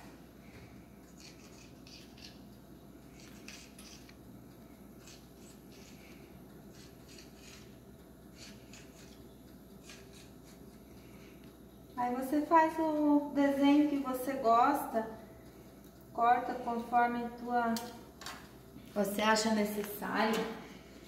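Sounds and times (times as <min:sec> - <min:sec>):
knife scraping on stone countertop: 0:01.1 - 0:02.4, 0:03.2 - 0:04.2, 0:05.0 - 0:06.0, 0:06.7 - 0:07.7, 0:08.4 - 0:09.2.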